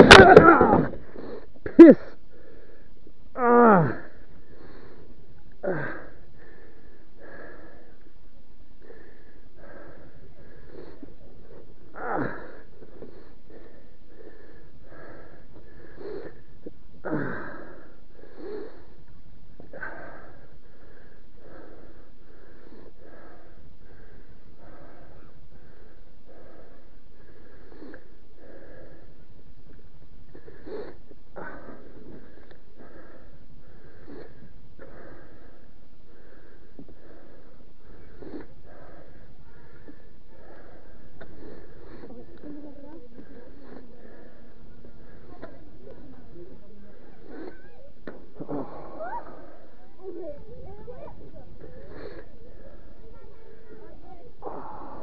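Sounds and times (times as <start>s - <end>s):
man groaning in pain: 0.0s - 1.0s, 1.8s - 2.0s, 3.4s - 4.1s
wheezing sniffing breaths: 8.8s - 29.2s, 30.3s - 55.0s.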